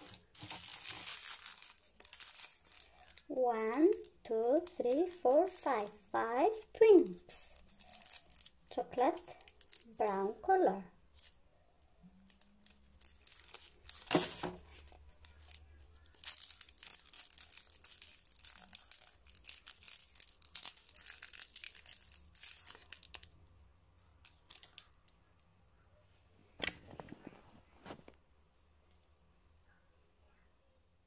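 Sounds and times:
foil wrapper crinkling: 0.0s - 5.9s, 7.5s - 9.9s, 12.2s - 23.5s.

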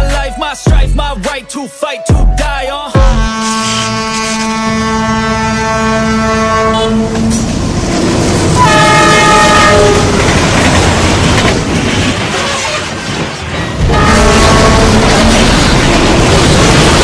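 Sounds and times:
locomotive horn blast: 3.1s - 7.6s, 8.6s - 10.3s, 12.3s - 13.0s, 13.8s - 15.9s
train rumble: 3.1s - 17.0s.

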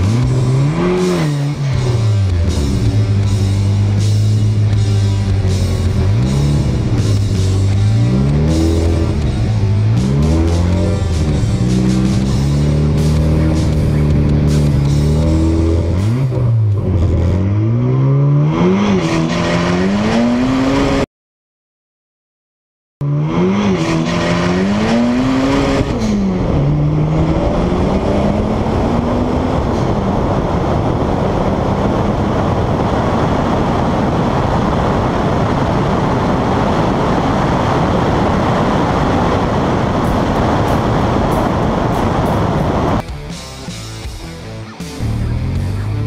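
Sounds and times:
car engine revving at full throttle: 0.0s - 21.1s, 23.0s - 46.0s
wind rushing over microphone: 23.5s - 43.0s.

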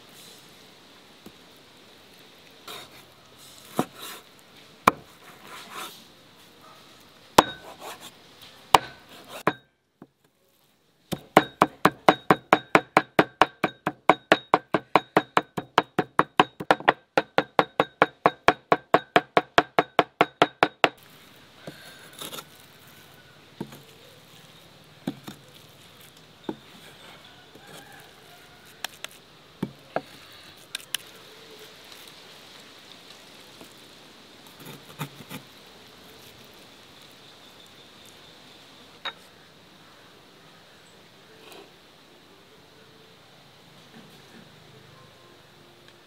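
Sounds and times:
knife chopping on wooden block: 7.4s - 8.1s, 11.1s - 21.0s.

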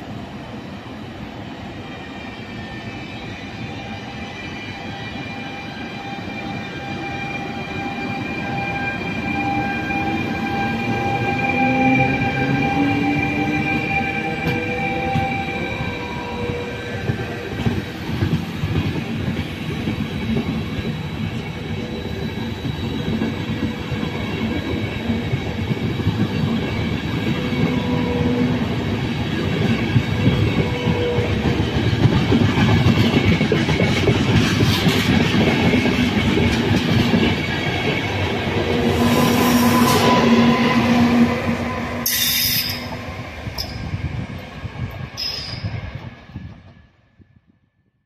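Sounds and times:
electric locomotive whine: 0.0s - 47.7s
train wheels clattering over rails: 12.4s - 41.1s.

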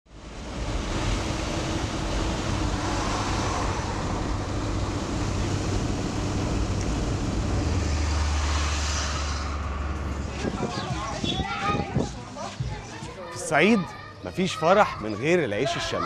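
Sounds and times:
van road and engine noise: 0.1s - 12.7s.

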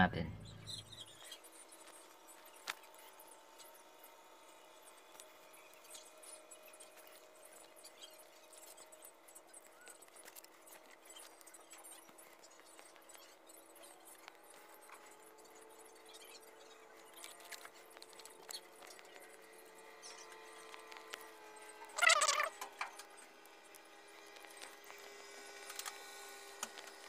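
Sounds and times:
faint steady hum: 0.0s - 27.0s
hands twisting twine: 17.0s - 19.2s, 21.9s - 22.6s.

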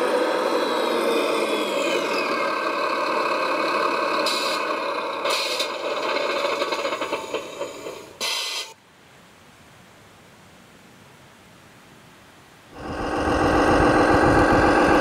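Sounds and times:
model truck mechanical whine: 0.0s - 8.8s, 12.8s - 15.0s
faint hiss: 7.8s - 15.0s
short hissing bursts: 8.2s - 8.8s.

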